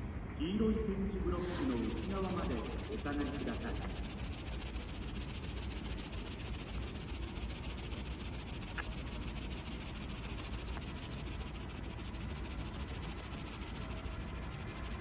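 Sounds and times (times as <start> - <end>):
railway station ambience rumble: 0.0 - 4.3.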